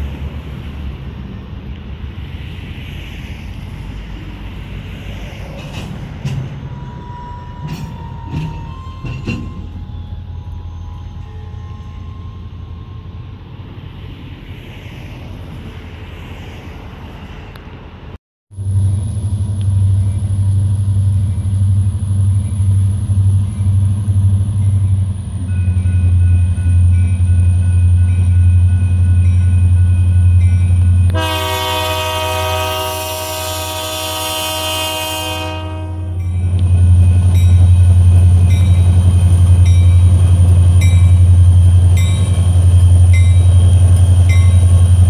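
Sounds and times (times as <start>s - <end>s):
diesel locomotive engine drone: 0.0s - 45.0s
freight train rumbling past: 0.0s - 45.0s
high engine whine: 17.5s - 31.8s
train horn blast: 31.1s - 36.3s.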